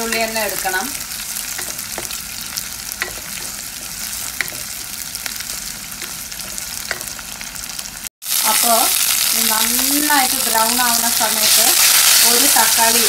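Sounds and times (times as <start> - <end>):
shallots and garlic sizzling: 0.0 - 13.0
wooden spatula knocking clay pot: 1.6 - 2.2, 3.0 - 7.2.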